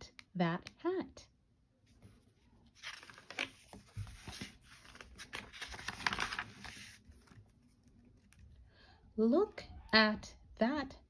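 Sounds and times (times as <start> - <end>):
book pages rustling: 1.9 - 8.6.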